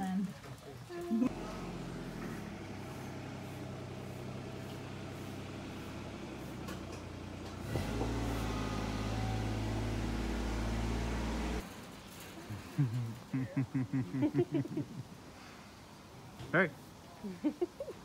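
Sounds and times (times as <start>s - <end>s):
low engine hum: 1.2s - 11.6s.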